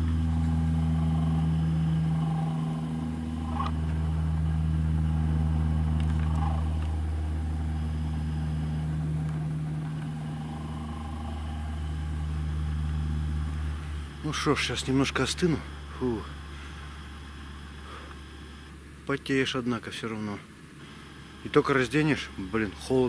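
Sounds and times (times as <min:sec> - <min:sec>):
helicopter flying over: 0:00.0 - 0:18.7.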